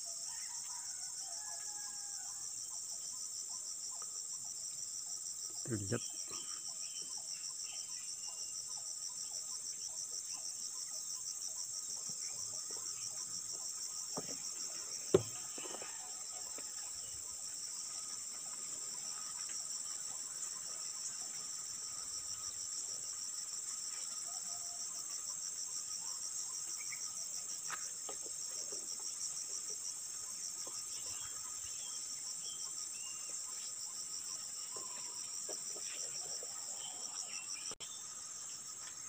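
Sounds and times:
forest insects chorus: 0.0s - 39.0s.

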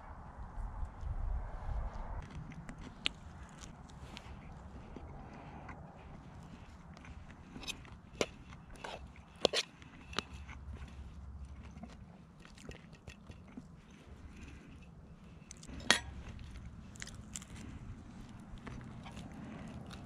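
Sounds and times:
chewing: 2.2s - 20.0s
fork scraping on plate: 7.5s - 11.1s.

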